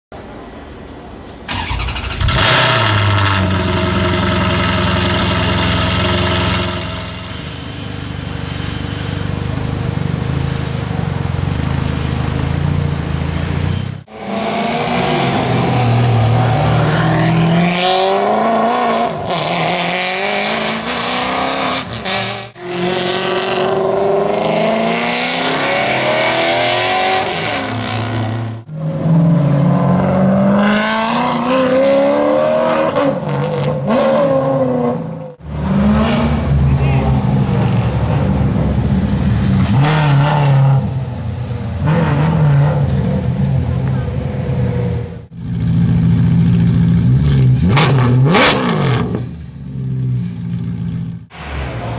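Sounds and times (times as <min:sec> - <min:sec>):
car engine revving: 0:01.5 - 0:08.0, 0:33.9 - 0:51.9.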